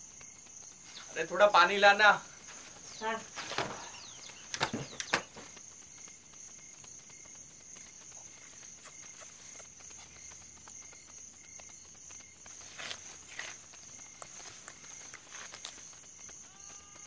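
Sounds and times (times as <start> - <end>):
crickets trilling: 0.0 - 17.0
sharp clicks or knocks: 4.5 - 5.4.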